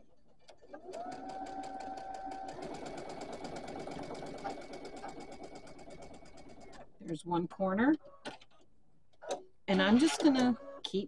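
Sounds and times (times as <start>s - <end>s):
sewing machine stitching: 0.4s - 6.9s, 9.2s - 11.0s.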